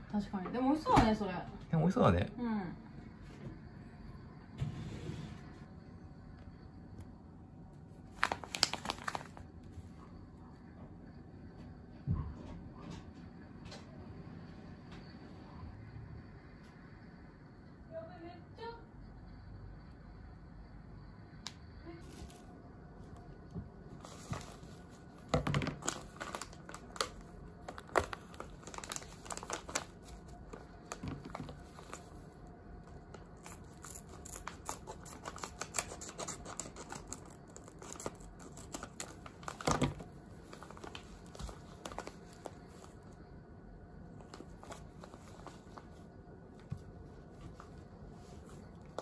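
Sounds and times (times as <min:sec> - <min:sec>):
foil bag crinkling: 0:08.1 - 0:09.5, 0:24.0 - 0:32.2, 0:33.3 - 0:42.9.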